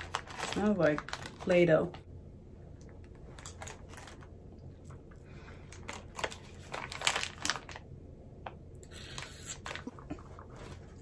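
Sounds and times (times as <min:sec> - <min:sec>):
candy crackling while eaten: 0:00.0 - 0:01.6, 0:05.8 - 0:08.0, 0:08.8 - 0:10.7.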